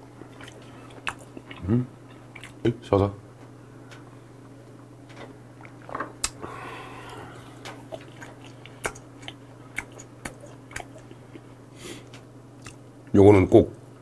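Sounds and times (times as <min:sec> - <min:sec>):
man chewing food: 0:00.0 - 0:02.6, 0:03.9 - 0:13.1
wet mouth clicks: 0:05.6 - 0:06.4, 0:07.9 - 0:11.2, 0:12.6 - 0:12.8
breathy sound: 0:06.4 - 0:07.8.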